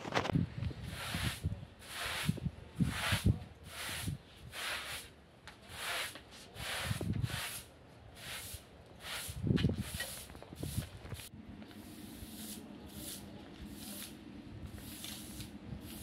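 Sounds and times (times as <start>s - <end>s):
broom sweeping tiled floor: 0.2s - 16.0s.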